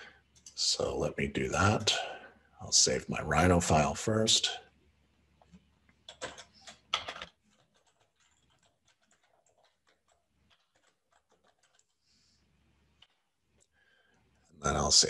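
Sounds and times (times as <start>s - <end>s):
keyboard typing: 5.4s - 12.0s, 12.9s - 13.7s.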